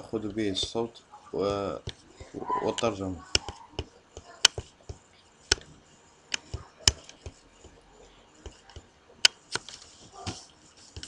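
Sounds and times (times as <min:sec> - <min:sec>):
computer mouse clicking: 0:02.7 - 0:04.7, 0:05.5 - 0:05.7, 0:06.3 - 0:07.8, 0:08.4 - 0:11.0.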